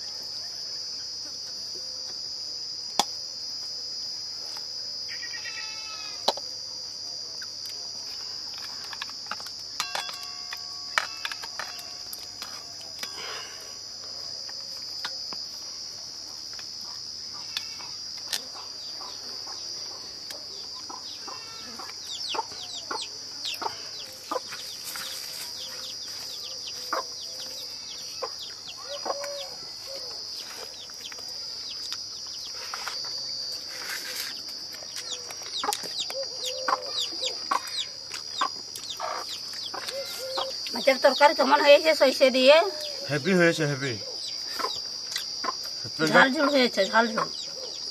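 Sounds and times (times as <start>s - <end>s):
chickens clucking: 16.8s - 27.2s, 34.9s - 41.1s, 44.4s - 47.9s.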